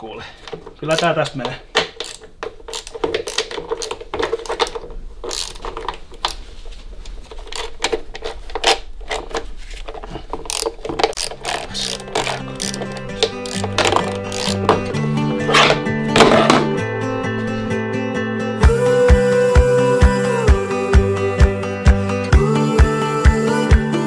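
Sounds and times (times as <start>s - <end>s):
hand ratchet clicking: 1.7s - 6.4s, 10.4s - 14.9s.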